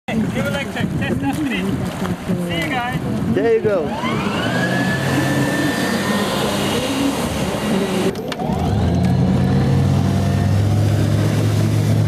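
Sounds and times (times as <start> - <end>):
boat motor and hull drone: 1.7 - 12.0
electric motor whine: 3.9 - 10.1.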